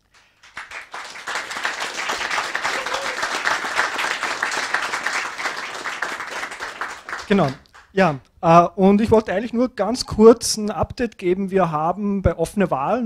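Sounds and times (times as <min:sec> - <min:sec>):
crowd clapping: 0:00.0 - 0:08.1.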